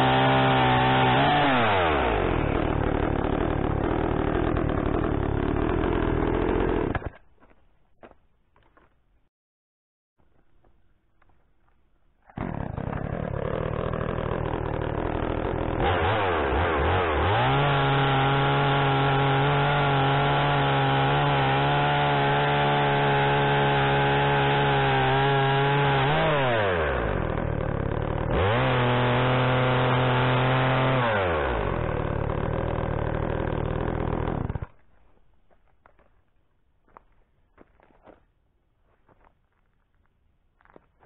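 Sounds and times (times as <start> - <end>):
chainsaw cutting timber: 0.0 - 7.2, 12.3 - 34.8
chainsaw idling and revving: 0.0 - 7.2, 12.4 - 34.8.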